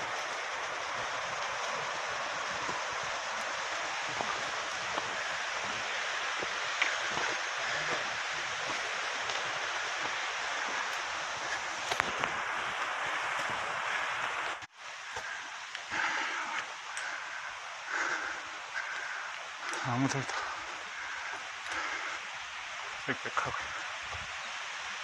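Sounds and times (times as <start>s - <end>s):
footsteps on dirt trail: 0.0s - 17.2s
mountain stream rushing: 0.0s - 25.0s.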